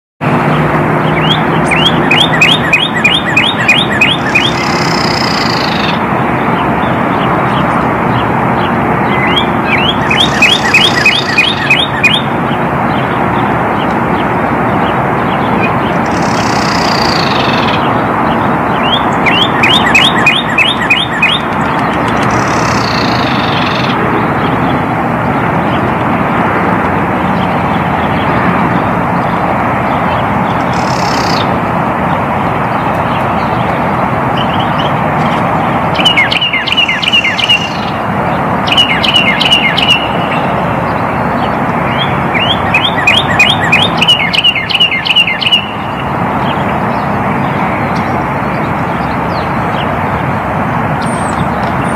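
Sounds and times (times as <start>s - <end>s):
road traffic noise: 0.2s - 51.9s
cardinal singing whistles: 1.2s - 5.9s, 9.1s - 12.3s, 18.8s - 21.5s, 36.0s - 37.9s, 38.7s - 40.5s, 41.9s - 46.0s.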